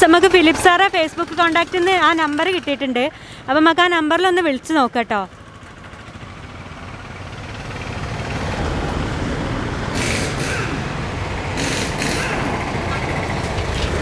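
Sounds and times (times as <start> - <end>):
heavy vehicle rumbling past: 5.3 - 14.0
short air hisses: 9.9 - 10.9, 11.6 - 12.5.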